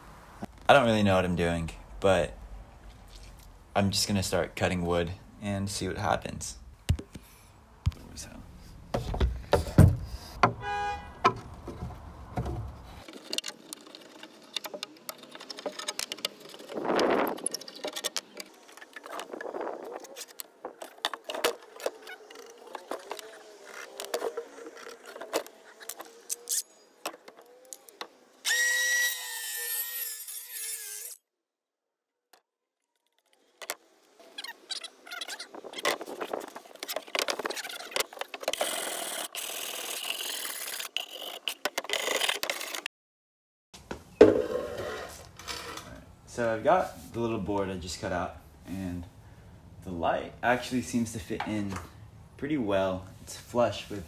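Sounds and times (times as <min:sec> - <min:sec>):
wood scraping on wood: 0:09.0 - 0:28.2, 0:44.2 - 0:46.0.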